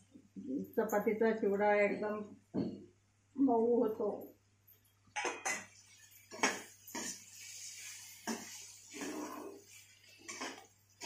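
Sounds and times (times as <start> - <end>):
metal spoon scraping a pan: 5.2 - 11.0.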